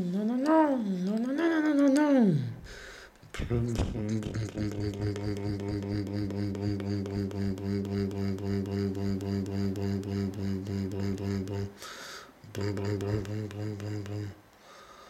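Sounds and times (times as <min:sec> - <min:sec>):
person imitating motor noise: 0:03.3 - 0:11.8, 0:12.4 - 0:14.4.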